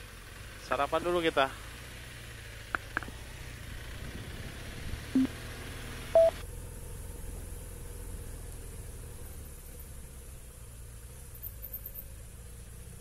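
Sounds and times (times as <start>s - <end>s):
vehicle engine idling: 0.0s - 13.0s
short electronic beeps: 6.2s - 6.4s.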